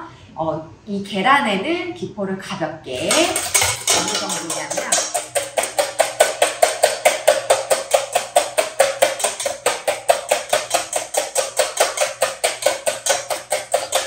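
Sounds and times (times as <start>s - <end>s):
whisk clattering in metal bowl: 3.0s - 14.0s.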